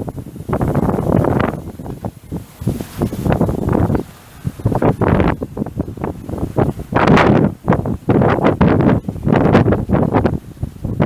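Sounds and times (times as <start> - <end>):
wind buffeting the microphone: 0.0 - 11.0.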